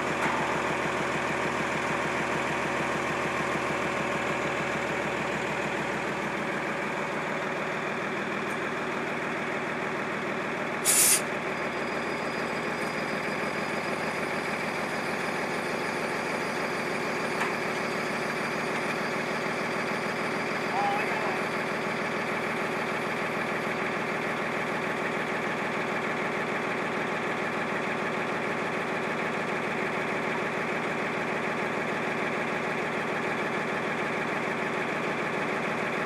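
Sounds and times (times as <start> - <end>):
truck engine idling: 0.0 - 36.0
hiss of released air: 10.8 - 11.3.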